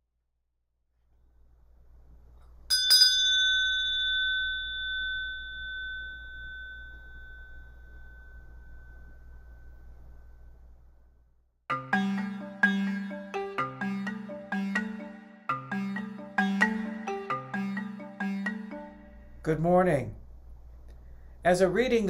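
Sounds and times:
meditation bell ringing: 2.7 - 10.7
faint low hum: 5.1 - 11.5.

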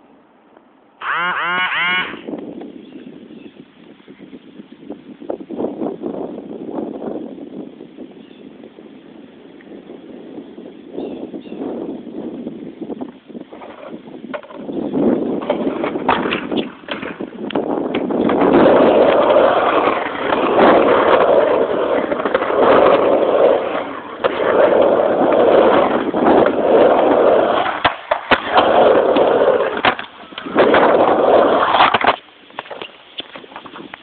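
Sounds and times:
skateboard wheels rolling on ramp: 1.0 - 3.9, 4.6 - 34.0
skateboard clacks: 13.5 - 34.0.

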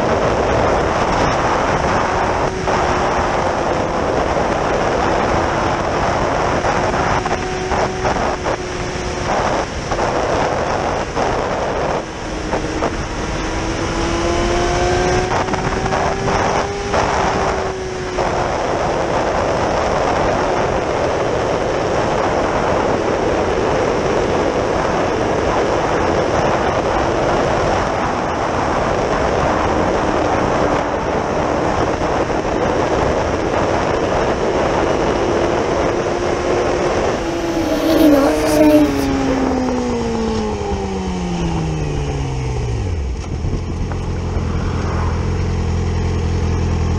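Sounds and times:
motorcycle engine accelerating: 0.0 - 19.6, 33.9 - 46.9
wind rushing: 36.0 - 41.8.

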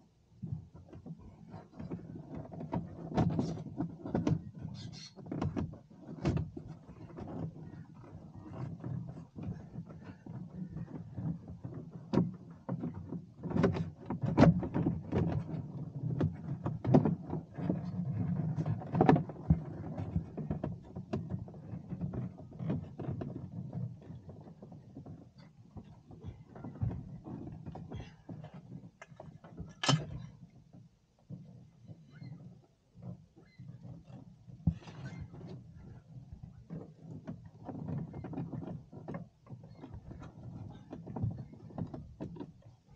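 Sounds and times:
knocks clicks and rustling: 25.1 - 30.5.

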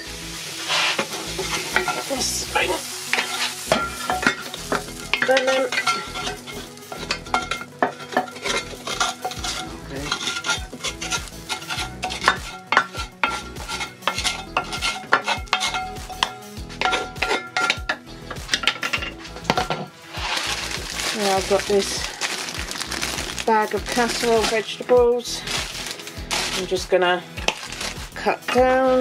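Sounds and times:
light sizzle: 0.0 - 16.2, 18.6 - 28.3
wooden spatula scraping a pan: 0.5 - 17.8, 18.4 - 21.9.

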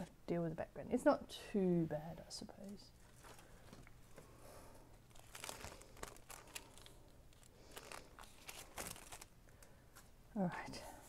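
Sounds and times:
paper rustling and crinkling: 2.6 - 4.2, 5.1 - 10.0.

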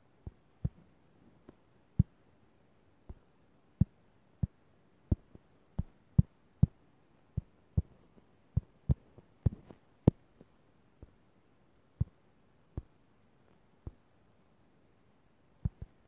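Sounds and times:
fingertip taps on touchscreen: 15.7 - 16.0.

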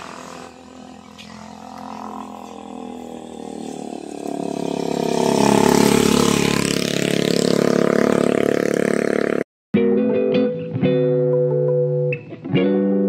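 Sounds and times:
vehicle engine running: 0.0 - 9.4.

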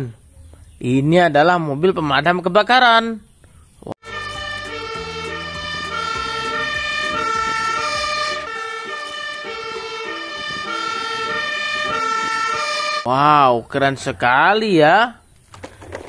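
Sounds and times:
truck engine running: 4.0 - 13.0
fire engine siren: 4.0 - 13.1.

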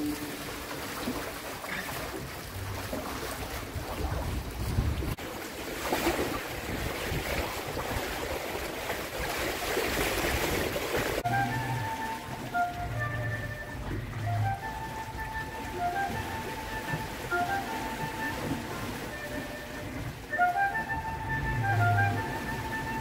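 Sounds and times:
music: 0.0 - 0.8, 11.2 - 23.0
water rushing past hull: 0.0 - 23.0
wind buffeting microphone: 2.0 - 23.0.

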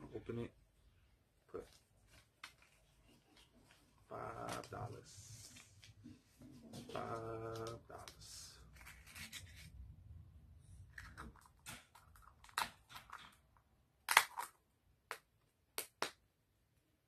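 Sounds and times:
paper rustling and crinkling: 1.6 - 9.7
sharp plastic clicks: 14.1 - 15.2.

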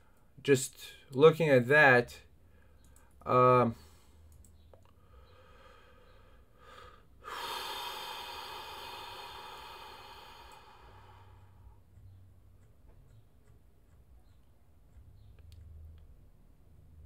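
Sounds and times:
man breathing in: 4.9 - 11.8.

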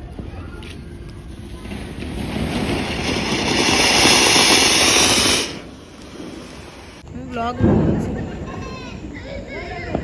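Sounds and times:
fountain firework hissing: 1.3 - 7.0.

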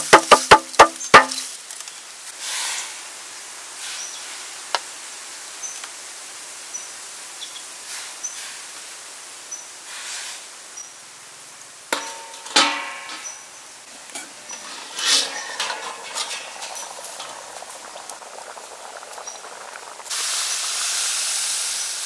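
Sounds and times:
metal lid clanging on wok: 11.9 - 13.4, 14.0 - 17.5
metal spatula scraping wok: 12.0 - 17.8.

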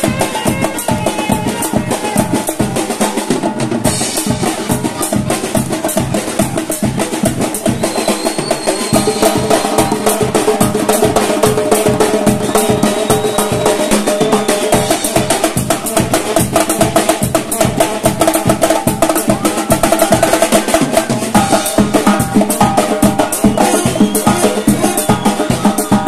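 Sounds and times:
reed wind instruments melody: 0.0 - 3.4, 21.4 - 26.0
drum kit playing: 0.0 - 26.0
bass drum beating: 14.5 - 26.0.

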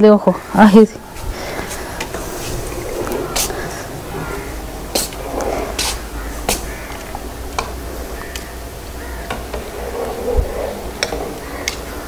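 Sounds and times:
steady low rumble: 0.4 - 12.0
wood fire crackling: 0.9 - 12.0.

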